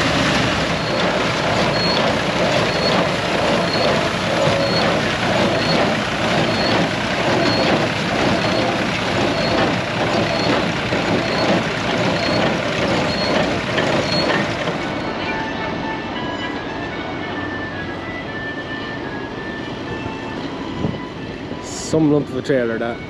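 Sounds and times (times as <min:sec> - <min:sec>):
tractor engine running: 0:00.0 - 0:15.1
machine hum: 0:00.0 - 0:15.4
baler clacking: 0:00.6 - 0:14.9.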